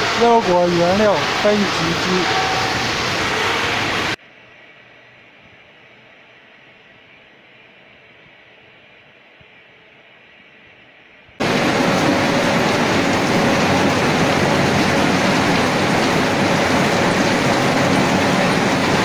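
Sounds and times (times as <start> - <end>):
loud machinery noise: 0.0 - 4.2, 11.4 - 19.0.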